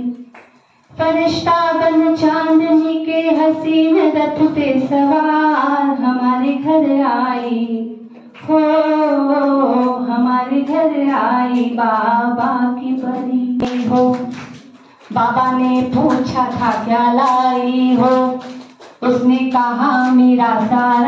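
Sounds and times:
woman singing slow song: 0:01.0 - 0:14.4, 0:15.1 - 0:21.0.

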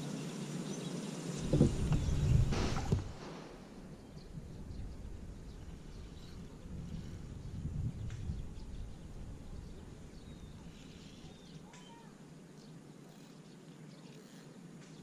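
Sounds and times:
low rumble: 0:01.4 - 0:10.7
faint bird calls: 0:08.2 - 0:15.0.

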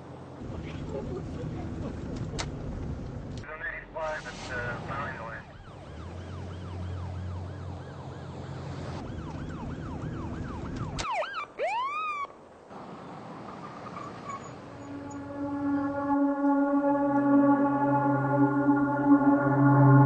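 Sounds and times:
car engine low rumble: 0:00.0 - 0:11.0, 0:12.4 - 0:20.0
police siren yelp: 0:05.5 - 0:08.4, 0:09.0 - 0:12.3, 0:14.7 - 0:20.0
siren swooping sweeps: 0:13.5 - 0:20.0
held musical tone: 0:14.6 - 0:20.0.

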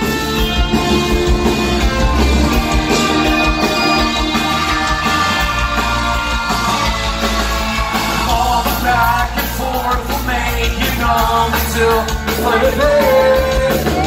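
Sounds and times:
live rock band playing: 0:00.0 - 0:14.0
person singing: 0:08.2 - 0:14.0.

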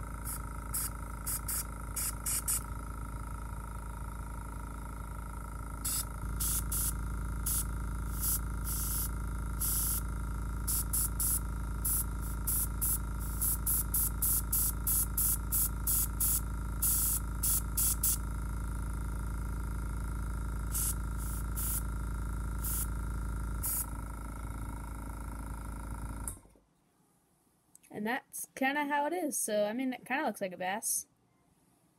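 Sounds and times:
compressor humming: 0:00.0 - 0:26.6
airbrush spraying hiss: 0:00.2 - 0:02.7, 0:05.8 - 0:10.0, 0:10.7 - 0:18.2, 0:20.7 - 0:21.9, 0:22.6 - 0:23.0, 0:23.6 - 0:24.0.

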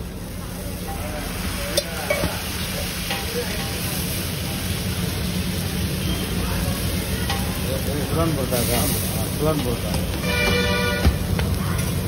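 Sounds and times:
batter sizzling on a griddle: 0:00.0 - 0:12.0.

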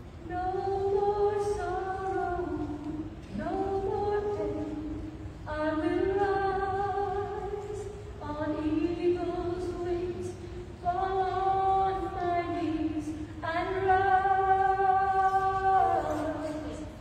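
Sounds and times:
woman singing into microphone: 0:00.2 - 0:17.0.

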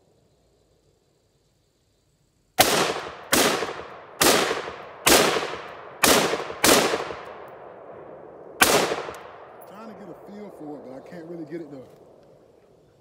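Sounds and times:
gunshots with echo: 0:02.6 - 0:11.5.

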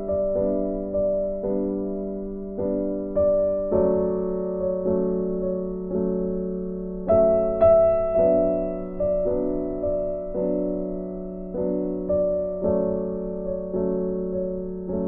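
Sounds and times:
slow gentle piano music: 0:00.0 - 0:15.0.

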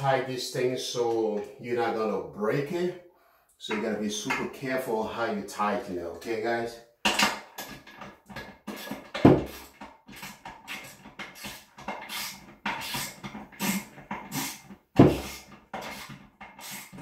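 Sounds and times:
man breathing and grunting: 0:12.1 - 0:16.0.

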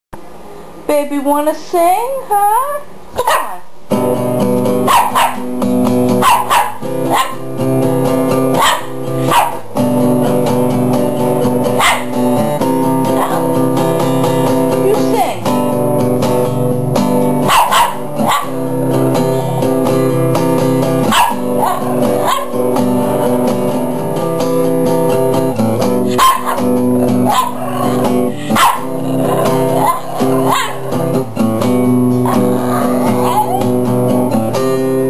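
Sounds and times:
guitar notes: 0:03.9 - 0:35.0
dog howling: 0:13.0 - 0:13.6, 0:21.1 - 0:23.5, 0:26.1 - 0:31.2, 0:32.2 - 0:33.9.

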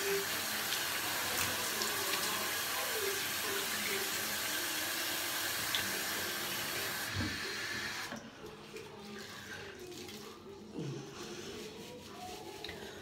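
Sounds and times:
sink tap running: 0:00.0 - 0:08.2.

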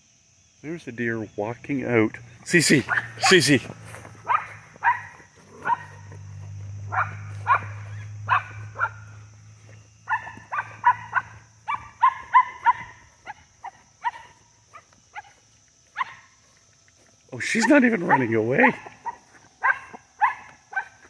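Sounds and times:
small dog barking: 0:02.8 - 0:03.5, 0:04.2 - 0:06.2, 0:06.8 - 0:09.2, 0:10.1 - 0:16.3, 0:18.0 - 0:21.0.

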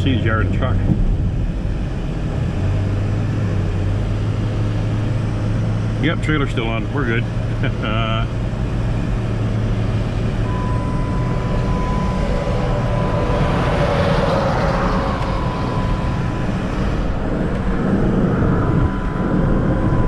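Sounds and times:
road and engine noise: 0:00.0 - 0:20.0
thin steady whine: 0:00.0 - 0:20.0.

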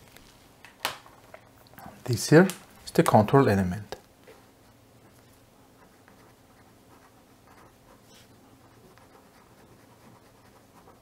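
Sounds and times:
low steady hum: 0:00.0 - 0:11.0
pen scratching on paper: 0:05.0 - 0:11.0.

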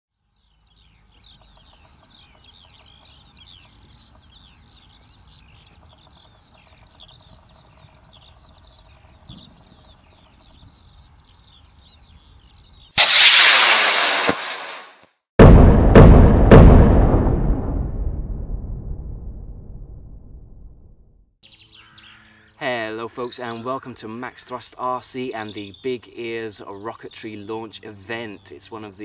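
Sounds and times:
birds singing: 0:00.1 - 0:13.0, 0:21.4 - 0:29.0
faint wind: 0:00.2 - 0:14.6
sudden loud blast: 0:13.0 - 0:21.0.

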